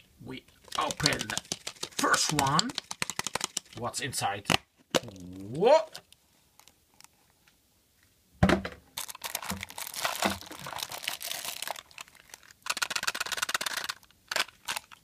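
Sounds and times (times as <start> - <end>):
plastic wrapping crinkling: 0.5 - 3.8, 9.0 - 15.0.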